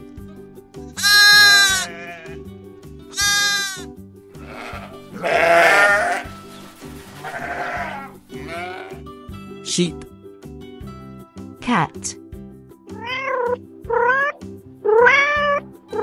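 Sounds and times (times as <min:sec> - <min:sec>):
background music: 0:00.0 - 0:16.0
sheep bleating: 0:01.0 - 0:02.5, 0:03.1 - 0:06.3, 0:07.2 - 0:09.1.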